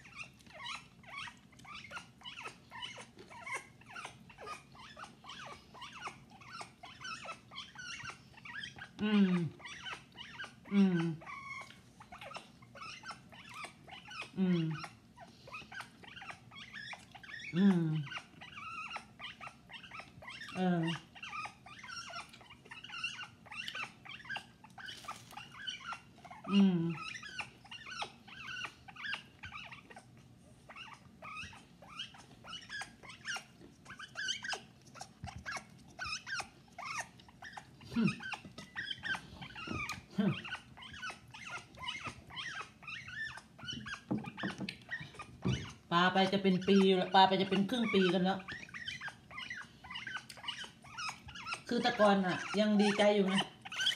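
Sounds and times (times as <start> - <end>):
parrot chattering and chirping: 0.0 - 30.1, 30.7 - 53.9.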